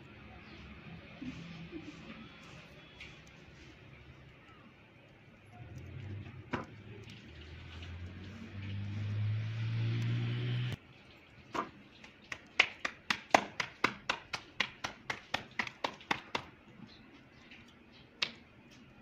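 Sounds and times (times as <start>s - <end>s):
dough slapped between palms: 11.6s - 16.6s.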